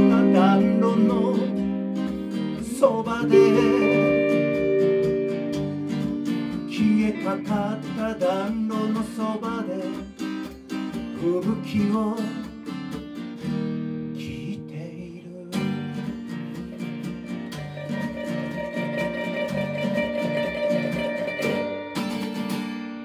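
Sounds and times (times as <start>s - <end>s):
electric guitar lead line: 0.0s - 10.1s, 15.7s - 23.0s
acoustic guitar strumming chords: 0.0s - 23.0s.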